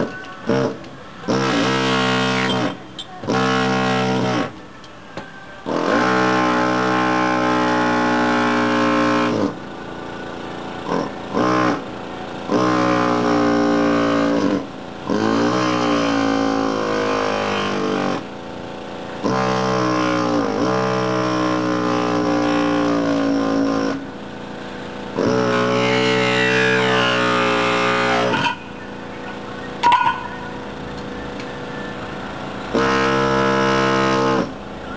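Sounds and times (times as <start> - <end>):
air hammer chipping tiles: 5.7 - 9.6, 12.5 - 18.2, 19.2 - 24.0, 24.9 - 28.7, 32.7 - 34.5.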